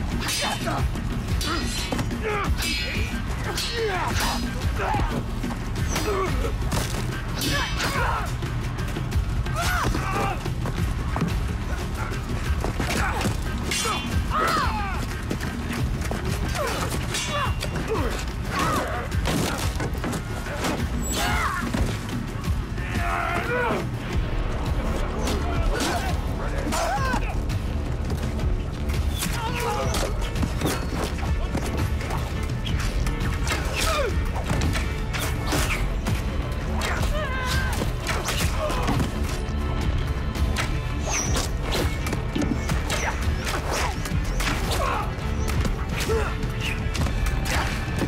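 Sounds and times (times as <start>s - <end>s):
background music: 0.0s - 48.0s
men shouting: 22.6s - 24.1s.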